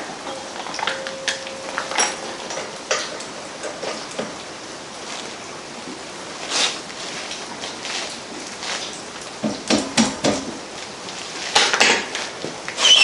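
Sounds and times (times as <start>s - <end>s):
metal tools clinking on workbench: 0.2s - 3.1s.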